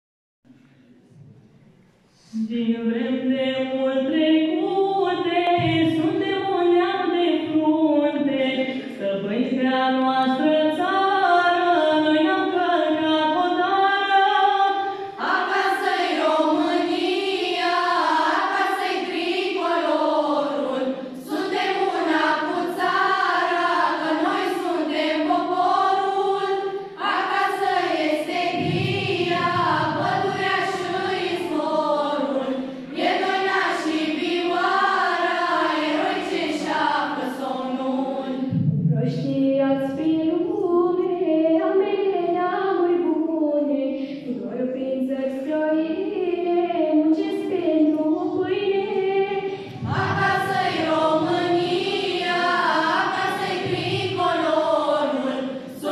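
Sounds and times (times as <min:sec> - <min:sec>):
children's choir singing: 0:10.2 - 0:38.7, 0:45.0 - 0:55.9.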